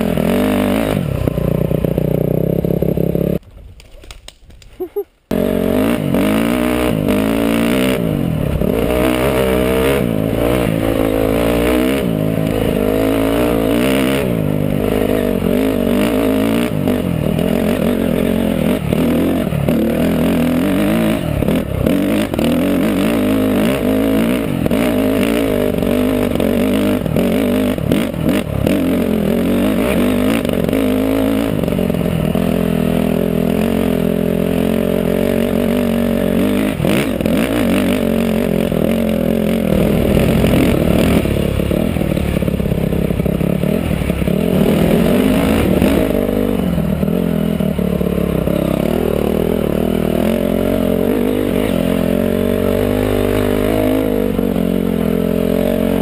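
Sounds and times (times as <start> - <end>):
dirt bike engine revving: 0.0 - 3.4, 5.3 - 56.0.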